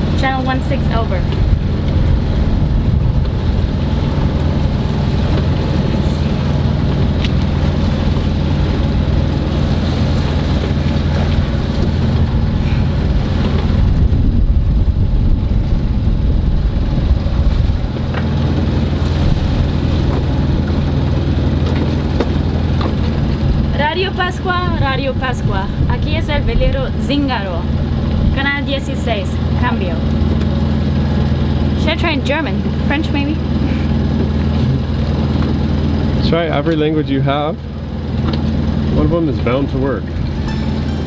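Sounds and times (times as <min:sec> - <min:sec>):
boat engine humming: 0:00.0 - 0:41.0.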